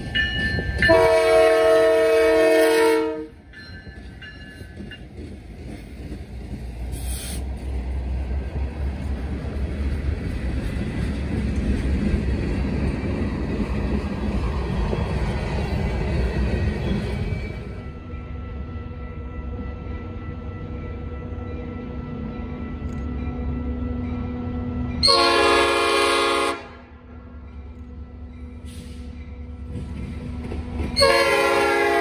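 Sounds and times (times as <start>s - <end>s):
freight train wheels rumbling on rail: 0.0s - 32.0s.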